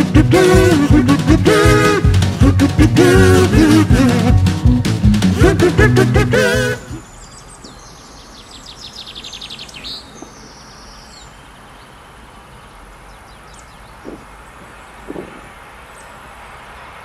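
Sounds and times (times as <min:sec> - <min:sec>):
background hiss: 0:00.0 - 0:17.0
songbirds chirping: 0:00.0 - 0:17.0.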